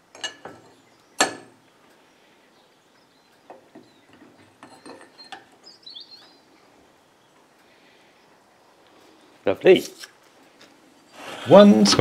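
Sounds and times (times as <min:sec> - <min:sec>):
metal knocks and scrapes: 0:03.5 - 0:05.5
metal plate clink: 0:04.5 - 0:05.5.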